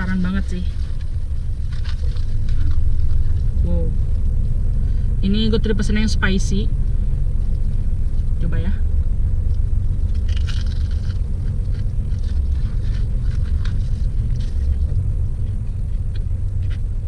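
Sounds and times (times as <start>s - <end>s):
low engine rumble: 0.0s - 17.0s
crunchy chewing of fried chicken: 0.8s - 3.6s, 9.4s - 17.0s.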